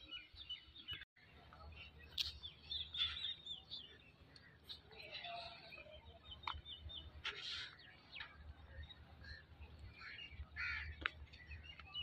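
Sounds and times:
birds calling faintly: 0.0 - 12.0.

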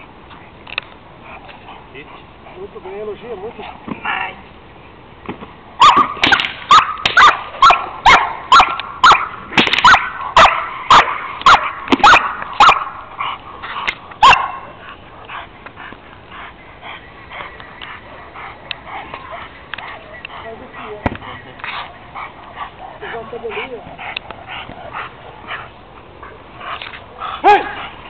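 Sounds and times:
dog barking loudly: 5.8 - 13.4, 14.2 - 14.8, 27.4 - 27.9.

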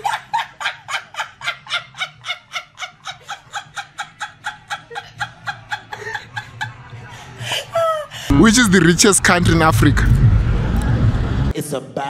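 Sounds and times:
woman laughing uncontrollably: 0.0 - 8.6.

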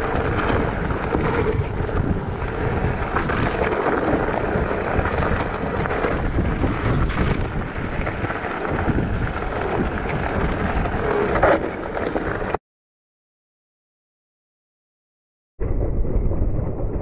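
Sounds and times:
bike tyres rolling on gravel: 0.0 - 12.6
wind buffeting microphone: 0.0 - 12.6.

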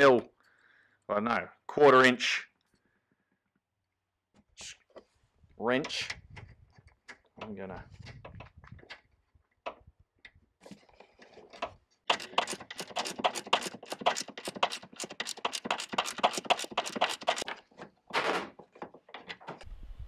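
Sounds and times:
ratchet clicking: 12.1 - 17.6.

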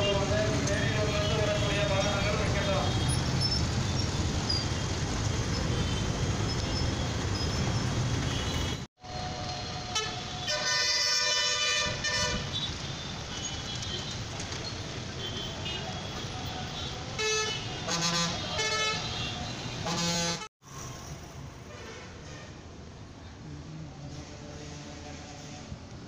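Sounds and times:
heavy city traffic engines: 0.0 - 26.0
vehicle horns tooting: 9.8 - 14.2, 15.2 - 20.5
loud car horn: 9.9 - 12.6, 16.8 - 20.5.

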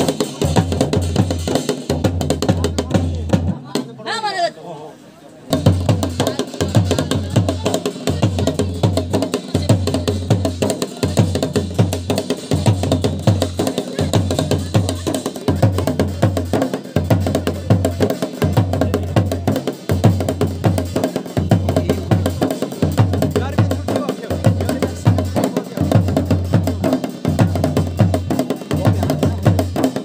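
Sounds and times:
fast ritual drumming: 0.0 - 4.4, 5.5 - 30.0.

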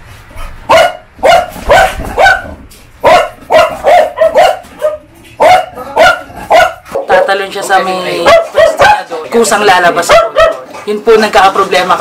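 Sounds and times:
dog barking: 0.6 - 9.2, 10.0 - 10.8.

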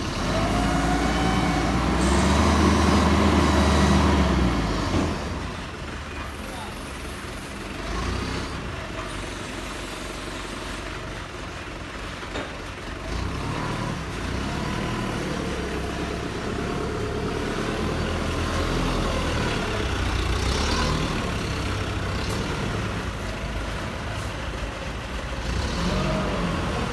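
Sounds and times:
forklift diesel engine running: 0.0 - 26.9.

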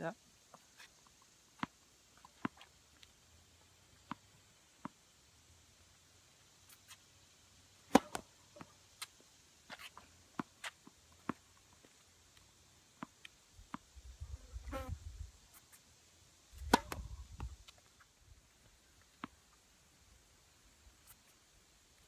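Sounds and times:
tennis ball knock: 16.7 - 17.1.

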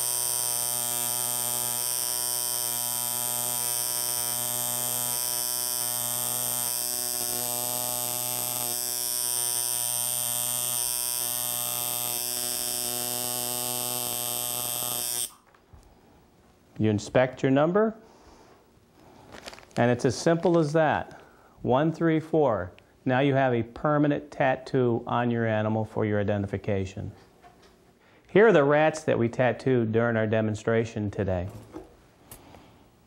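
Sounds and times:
tattoo machine buzzing: 0.0 - 15.4.

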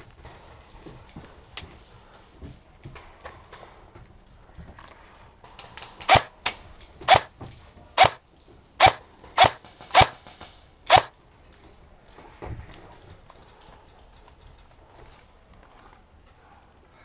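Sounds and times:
airsoft rifle shots cracking: 6.0 - 6.3, 7.0 - 7.3, 8.0 - 8.2, 8.8 - 11.1.

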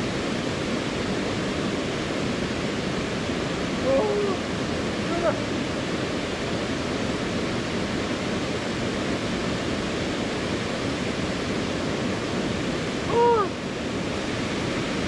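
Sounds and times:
mountain stream rushing: 0.0 - 15.0
person calling out: 3.8 - 4.4, 5.0 - 5.4, 13.1 - 13.6.

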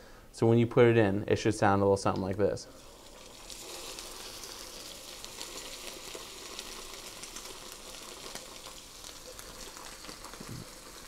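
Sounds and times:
steak sizzling in a frying pan: 2.8 - 11.0.

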